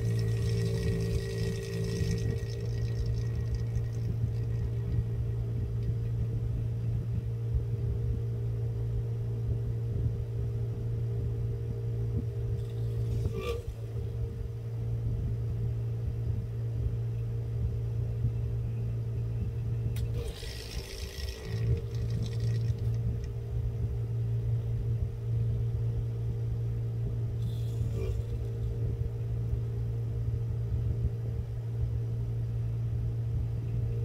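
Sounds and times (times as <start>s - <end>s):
electric suction pump humming: 0.0s - 6.9s, 12.2s - 14.7s, 19.9s - 24.5s, 27.0s - 30.3s.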